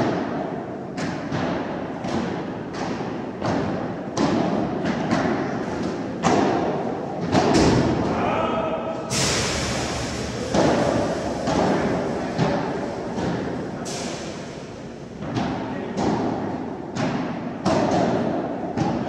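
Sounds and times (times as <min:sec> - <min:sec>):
paddle rackets striking ball: 0:01.0 - 0:08.0, 0:15.2 - 0:19.0.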